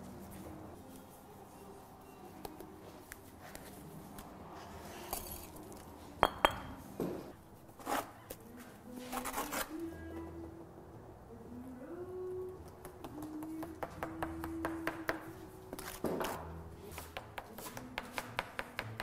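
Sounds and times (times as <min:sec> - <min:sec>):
metallic clinks on brick: 0:06.2 - 0:06.8.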